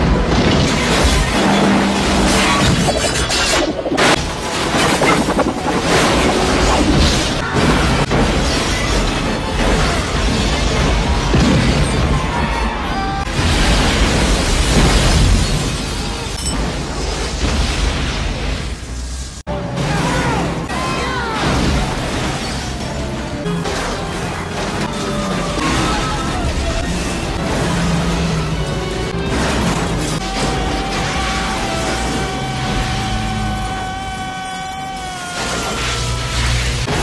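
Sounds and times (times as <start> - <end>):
explosions rumbling and crackling: 0.0 - 37.0
orchestral film score: 19.5 - 37.0
crashing and grinding: 21.4 - 37.0.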